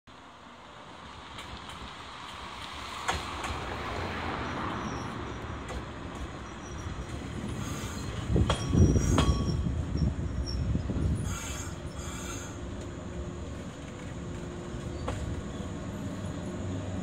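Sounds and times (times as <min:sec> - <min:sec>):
train wheels rumbling on rails: 0:00.7 - 0:17.0
high wheel squeal: 0:04.4 - 0:12.7.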